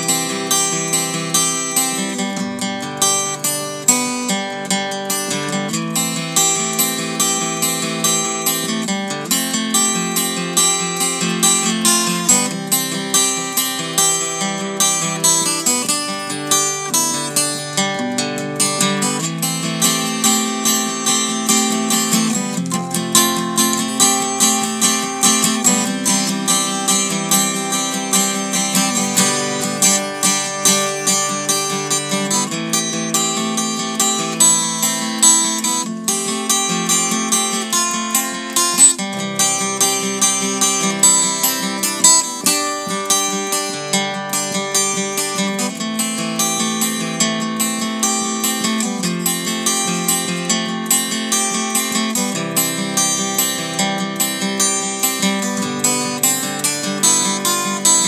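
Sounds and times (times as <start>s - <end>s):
acoustic guitar plucked and strummed: 0.0s - 58.0s.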